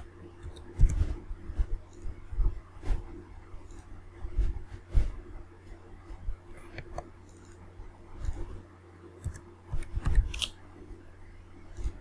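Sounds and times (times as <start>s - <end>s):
steady low hum: 0.0s - 12.0s
mouse and keyboard clicks: 9.2s - 10.6s.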